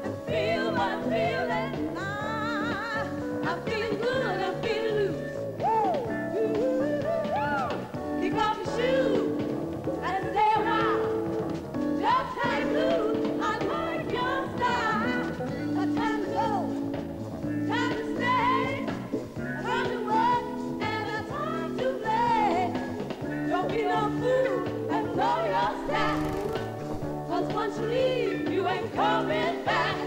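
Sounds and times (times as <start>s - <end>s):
woman singing into a microphone: 0.0s - 11.3s, 12.0s - 16.8s, 17.6s - 30.0s
band accompaniment: 0.0s - 30.0s.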